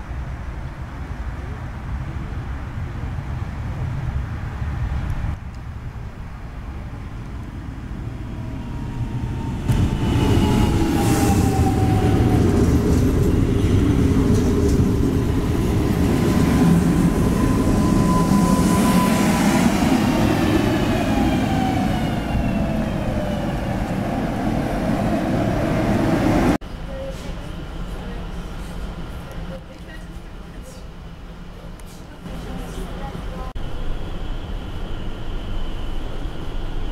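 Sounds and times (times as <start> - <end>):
train wheels rumbling: 6.6 - 36.9.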